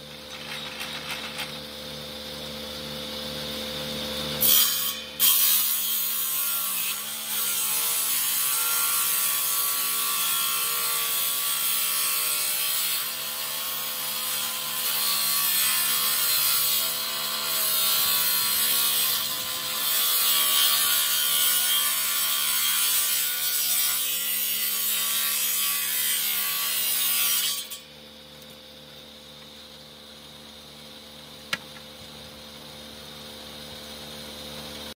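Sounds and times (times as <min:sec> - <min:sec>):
table saw cutting wood: 0:00.0 - 0:28.0
saw motor hum: 0:12.9 - 0:35.0.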